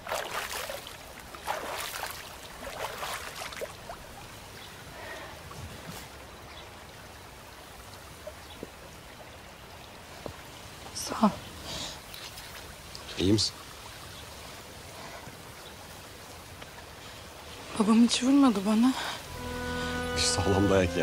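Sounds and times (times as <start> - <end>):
water splashing onto face: 0.0 - 3.8.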